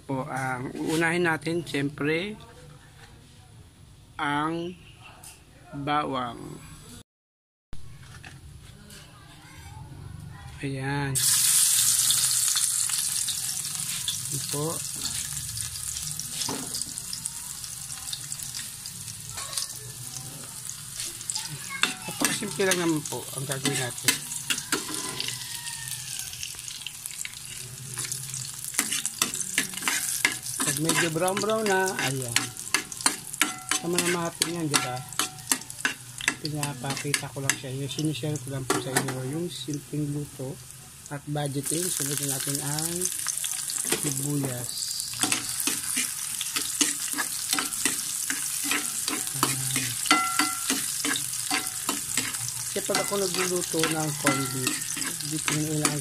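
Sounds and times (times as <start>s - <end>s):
garlic sizzling in hot oil: 11.2s - 56.0s
ladle scraping a wok: 20.9s - 25.5s, 27.4s - 37.3s, 45.1s - 56.0s.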